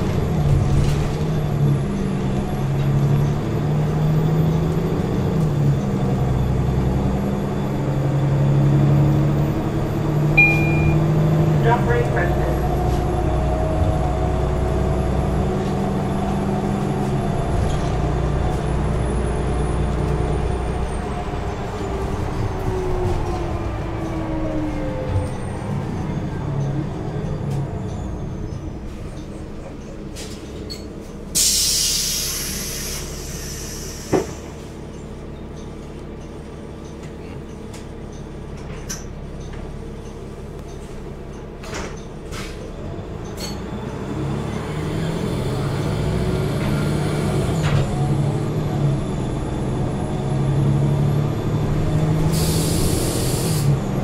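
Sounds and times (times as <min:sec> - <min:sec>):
bus drivetrain whine: 0:00.0 - 0:54.0
bus engine idling and accelerating: 0:00.0 - 0:54.0
compressed air hiss: 0:52.3 - 0:53.7.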